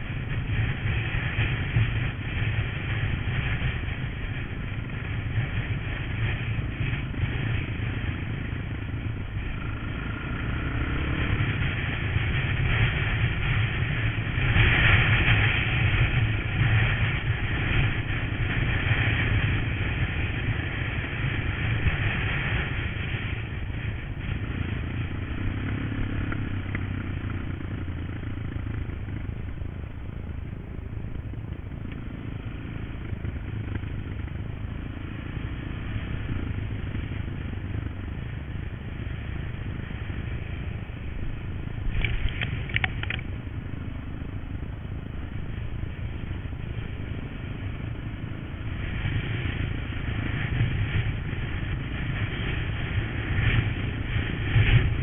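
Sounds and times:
motorcycle engine running: 0.0 - 55.0
clatter of clicks: 41.9 - 43.3.

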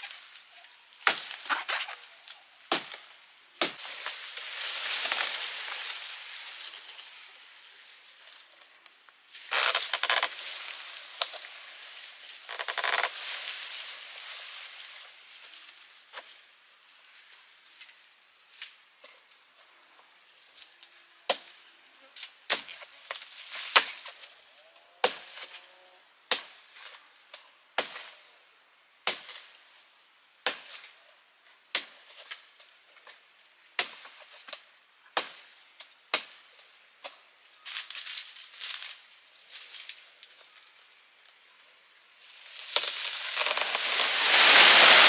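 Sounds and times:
crackling rustle: 0.0 - 28.4, 29.0 - 45.0.

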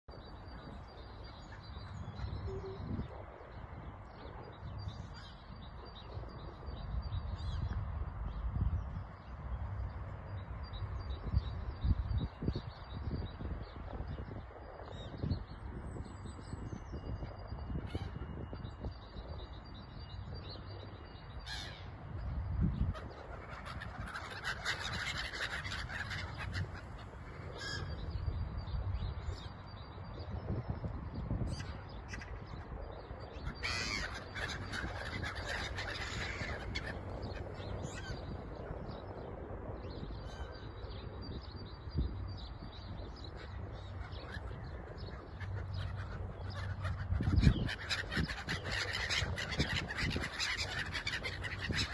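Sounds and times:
wind on microphone: 0.0 - 51.9
gulls calling: 22.8 - 28.1, 31.5 - 38.8, 43.3 - 51.9.

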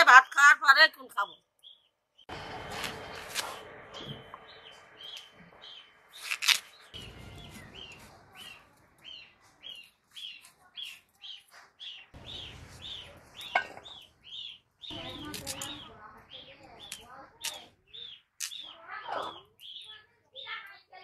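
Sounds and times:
bird chirping: 0.1 - 21.0
sharp crack: 2.3 - 5.4, 6.1 - 8.0, 12.2 - 16.0.

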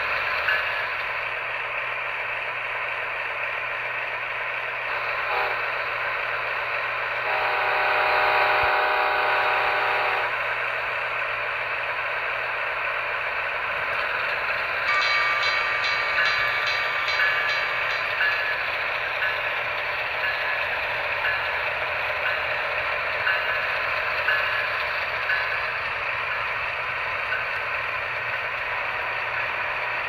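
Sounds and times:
model train whirring and rattling: 0.0 - 30.0
train horn blast: 4.9 - 5.8, 7.2 - 10.4.

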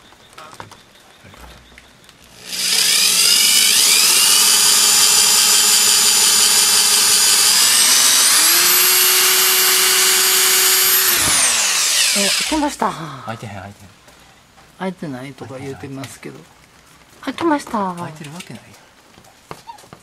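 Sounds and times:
power drill whining: 2.3 - 12.8.

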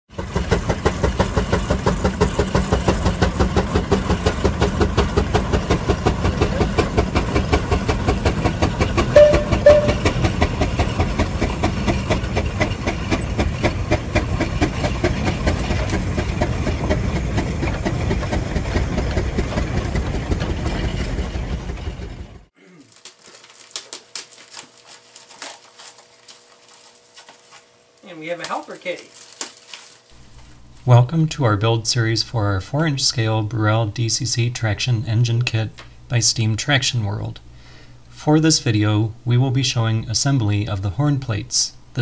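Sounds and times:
steam engine exhaust chuffing: 0.1 - 22.5
short whistle toots: 9.2 - 10.2.

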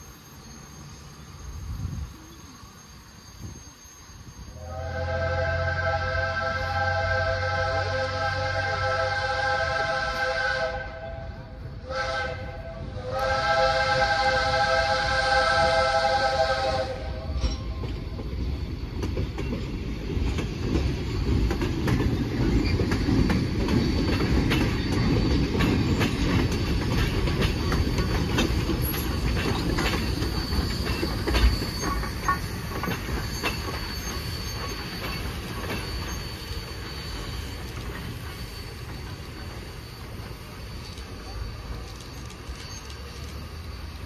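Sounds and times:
thin wheel squeal: 0.0 - 4.6, 28.8 - 44.0
train wheels rumbling: 0.0 - 44.0
steam whistle: 4.5 - 17.6
wheels clicking over rail joints: 17.4 - 44.0.

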